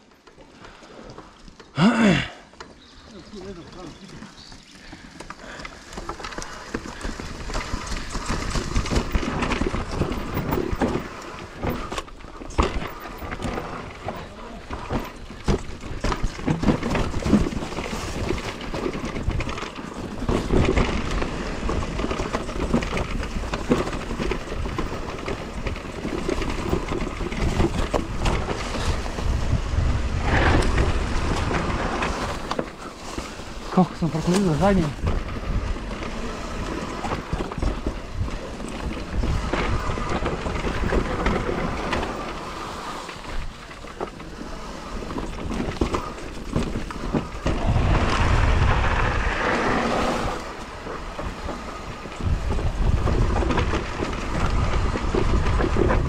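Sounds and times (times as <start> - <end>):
bike rattling over bumps: 0.0 - 56.0
tyres rolling on dirt: 0.0 - 56.0
wind rumbling on microphone: 4.8 - 56.0.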